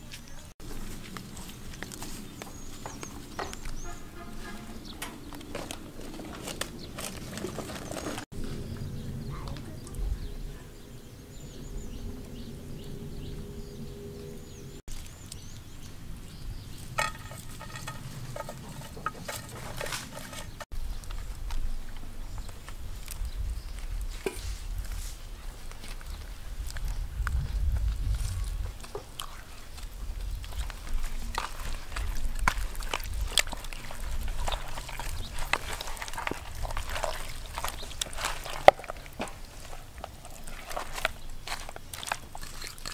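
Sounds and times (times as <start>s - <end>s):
small birds chirping: 0.0s - 42.9s
low hum: 8.4s - 14.8s
hands squelching in wet marinade: 28.5s - 42.9s.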